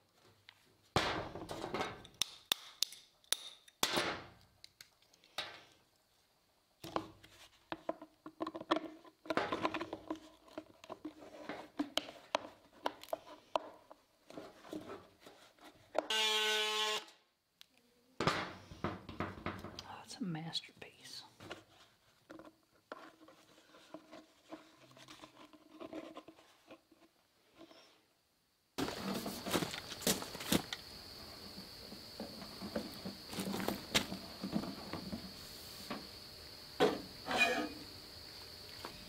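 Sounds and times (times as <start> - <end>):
knocks and handling clatter: 6.8 - 15.6, 31.6 - 36.0.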